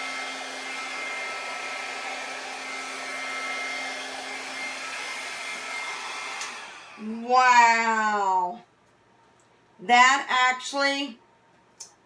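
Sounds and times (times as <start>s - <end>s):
hair dryer blowing air: 0.0s - 7.4s.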